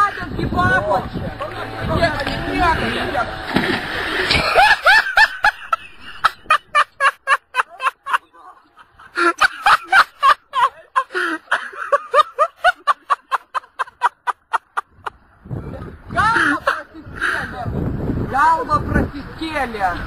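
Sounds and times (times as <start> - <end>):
high-pitched gasping laughter: 9.0 - 10.0, 10.7 - 12.6.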